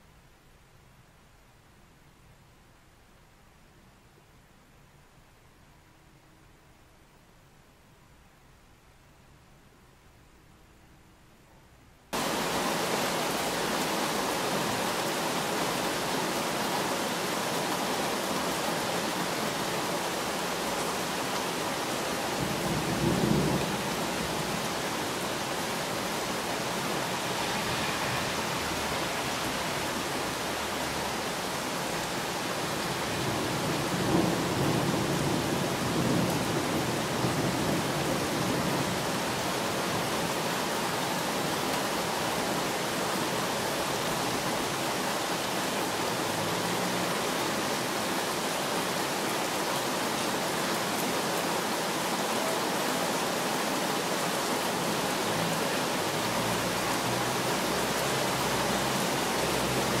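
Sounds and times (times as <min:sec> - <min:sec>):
rain hissing: 0:12.1 - 1:00.0
thunder rumble: 0:25.8 - 0:31.4.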